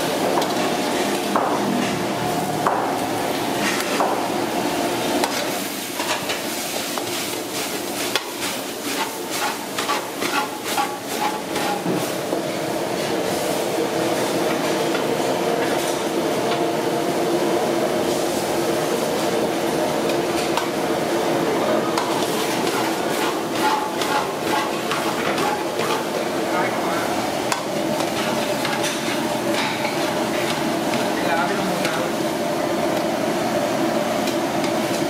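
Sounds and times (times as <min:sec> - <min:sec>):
food sizzling in a pan: 0:04.2 - 0:14.4, 0:27.1 - 0:33.8
metal utensil scraping a pan: 0:08.9 - 0:11.8, 0:22.2 - 0:26.1.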